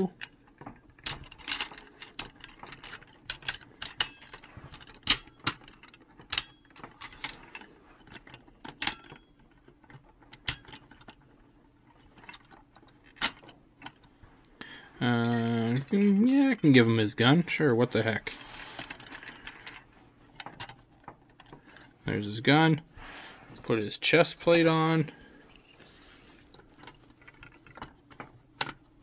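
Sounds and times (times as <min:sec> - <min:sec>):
plastic toy parts clicking: 0:00.2 - 0:11.2, 0:26.8 - 0:28.8.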